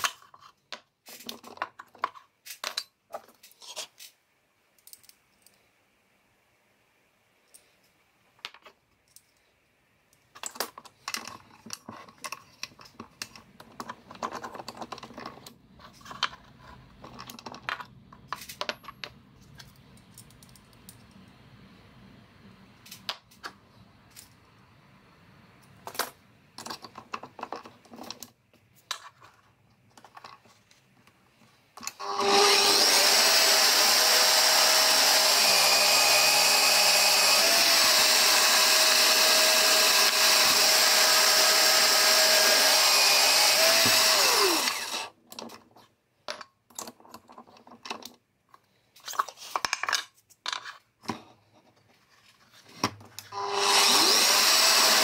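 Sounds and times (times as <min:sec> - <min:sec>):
drill press motor whine: 0:32.0 - 0:45.1, 0:53.3 - 0:55.0.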